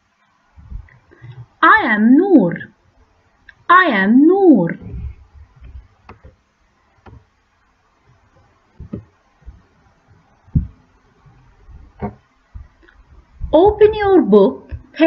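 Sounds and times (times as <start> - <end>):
handling clicks and thumps: 8.8 - 9.6.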